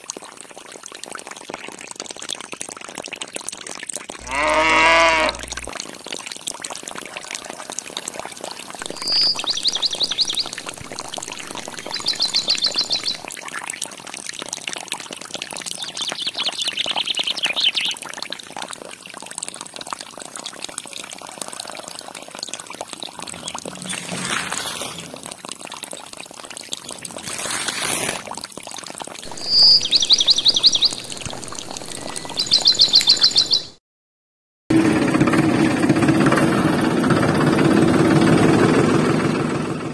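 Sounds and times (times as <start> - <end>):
water pouring into a pond: 0.0 - 33.6
high bird trills: 4.2 - 5.7, 8.8 - 13.3, 29.3 - 33.8.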